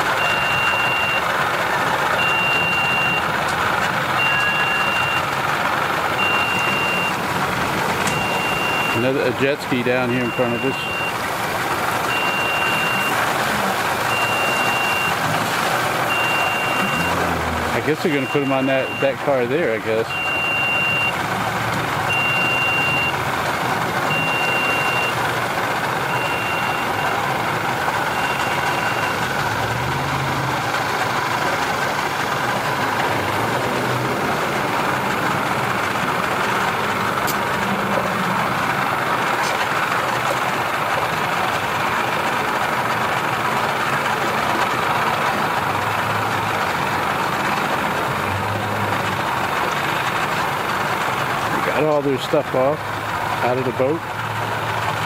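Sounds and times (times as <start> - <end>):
vehicle engine idling: 0.0 - 55.0
electronic warning beeps: 0.2 - 1.3, 2.2 - 3.3, 4.2 - 5.3, 6.2 - 7.2, 8.1 - 9.2, 10.1 - 11.2, 12.1 - 13.2, 14.1 - 15.2, 16.1 - 17.3, 18.1 - 19.2, 20.1 - 21.2, 22.1 - 23.2, 24.1 - 25.2, 26.1 - 27.2, 28.1 - 29.3.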